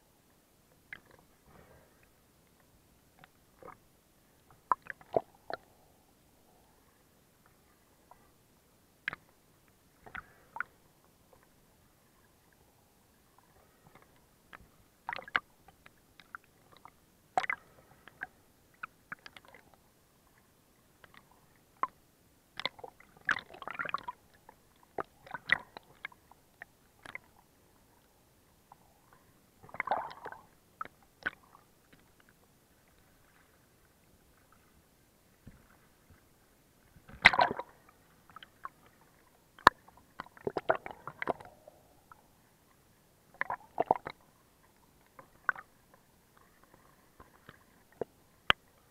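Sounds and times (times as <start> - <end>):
sea water sloshing and gurgling: 0.8 - 8.4, 9.1 - 22.0, 22.6 - 48.9
water splash: 29.6 - 30.4, 37.1 - 38.4.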